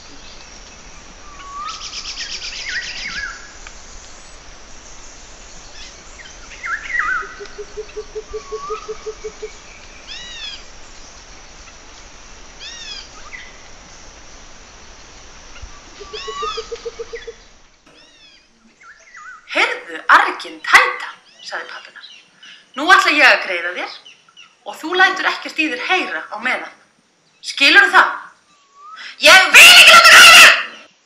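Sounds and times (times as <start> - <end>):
birds chirping and calling: 0.0 - 13.8, 14.7 - 19.5
low rapid bird trill: 0.0 - 19.5
faint steady hiss: 0.0 - 31.0.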